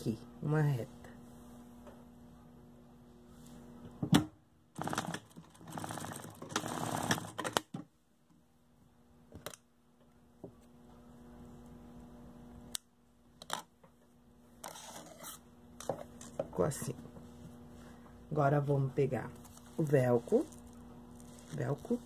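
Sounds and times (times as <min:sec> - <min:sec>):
fabric rustling: 0:19.2 - 0:22.0.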